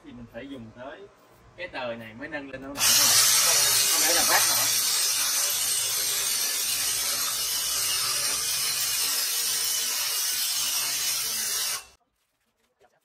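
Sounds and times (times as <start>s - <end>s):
electric winch running: 2.8s - 11.9s.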